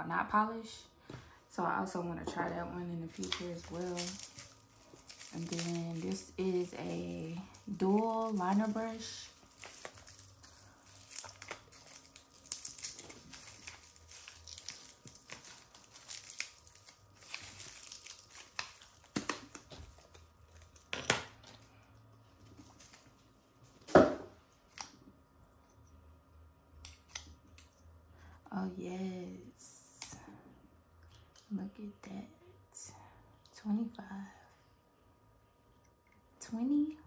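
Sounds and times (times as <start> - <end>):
plastic packaging crinkling and tearing: 3.0 - 21.8, 22.5 - 23.2.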